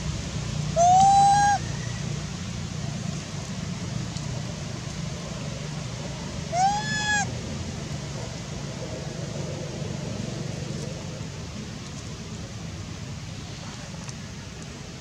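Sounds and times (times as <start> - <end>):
low background hum: 0.0 - 15.0
young macaque crying call: 0.7 - 1.9, 6.5 - 7.3.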